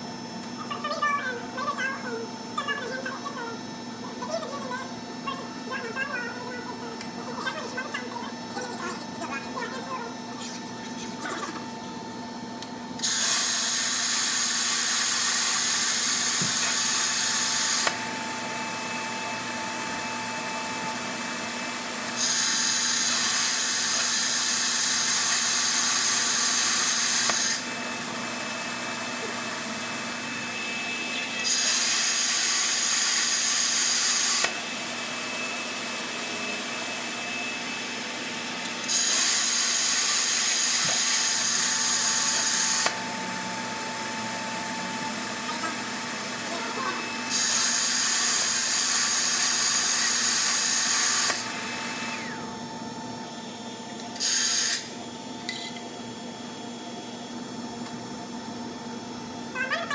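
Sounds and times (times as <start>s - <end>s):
plasma cutter hissing: 13.0s - 17.9s, 54.2s - 54.9s.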